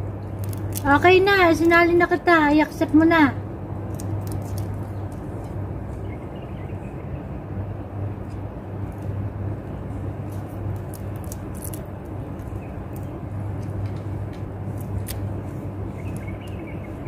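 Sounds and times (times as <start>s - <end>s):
low background hum: 0.0s - 17.0s
crab shell cracking: 0.2s - 0.9s, 3.8s - 5.3s, 10.3s - 15.3s.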